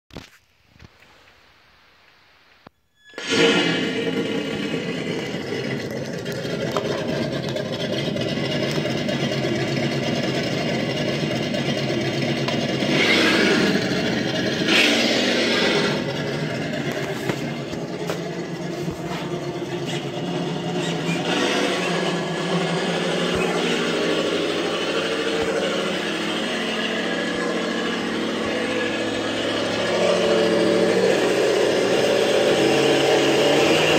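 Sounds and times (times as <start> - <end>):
engine idling: 3.0 - 33.9
engine revving: 3.1 - 33.9.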